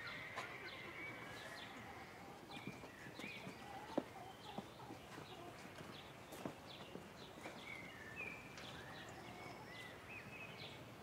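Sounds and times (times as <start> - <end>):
small birds chirping: 0.1 - 10.9.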